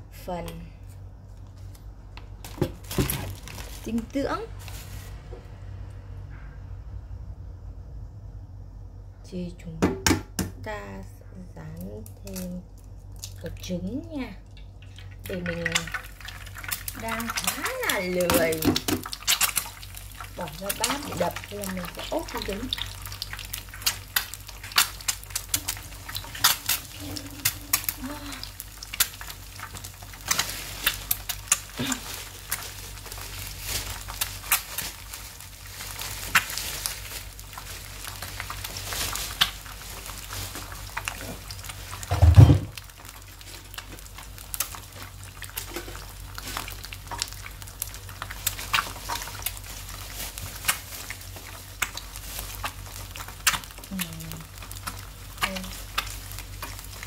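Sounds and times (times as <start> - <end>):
eggs sizzling in a pan: 11.8 - 57.0.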